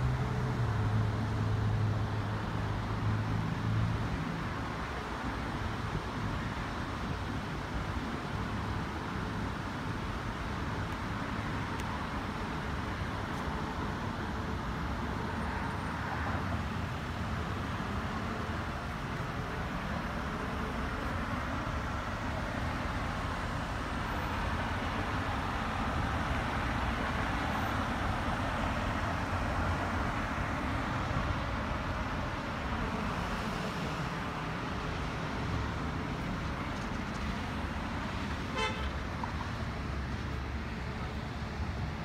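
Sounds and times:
road traffic noise: 0:00.0 - 0:42.0
car horn toot: 0:38.5 - 0:39.0.

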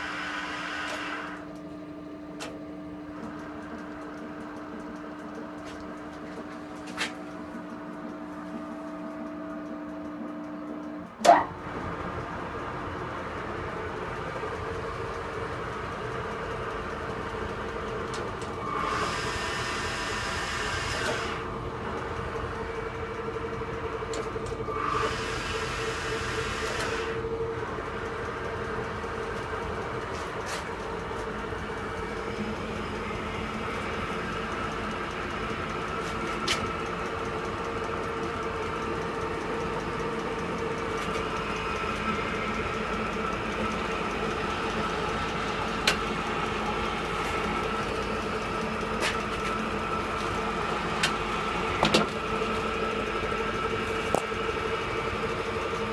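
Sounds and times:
cutting tool hissing: 0:00.0 - 0:01.4, 0:18.6 - 0:21.4, 0:24.7 - 0:27.2
lathe humming: 0:00.0 - 0:01.9, 0:11.6 - 0:55.9.

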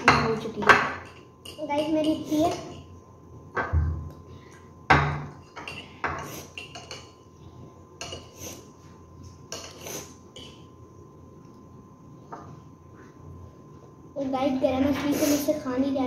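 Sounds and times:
forks clinking against bowls: 0:00.0 - 0:02.9, 0:04.9 - 0:07.2, 0:08.0 - 0:08.4, 0:09.5 - 0:10.6.

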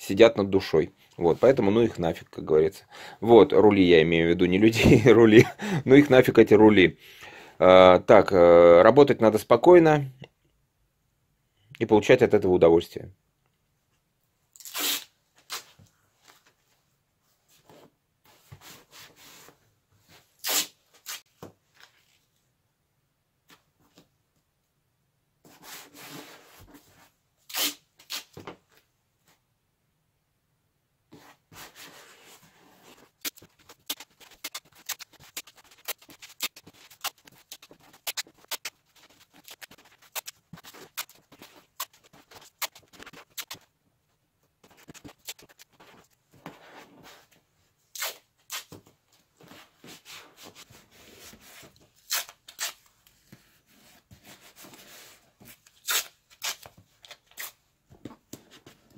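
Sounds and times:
material rustling and rubbing: 0:31.1 - 0:57.5.

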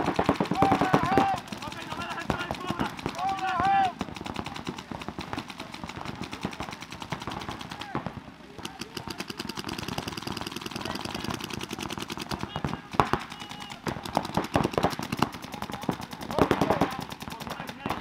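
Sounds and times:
paintball markers firing: 0:00.0 - 0:18.0.

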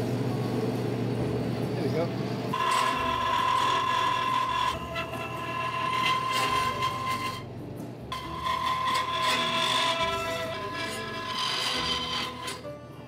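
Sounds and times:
bandsaw cutting metal: 0:02.5 - 0:07.5, 0:08.1 - 0:12.8.

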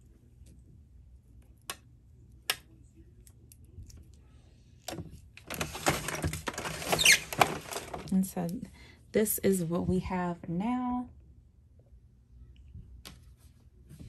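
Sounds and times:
small items being handled: 0:03.2 - 0:08.6.

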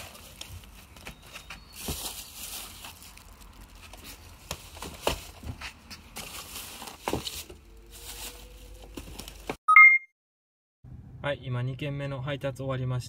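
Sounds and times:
plastic bag crinkling: 0:01.7 - 0:04.0
two-tone electronic beep: 0:09.7 - 0:10.1.

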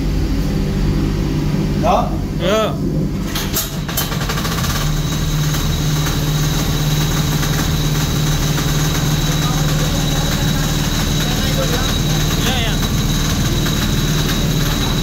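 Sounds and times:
small engine starting and running: 0:03.2 - 0:15.0.

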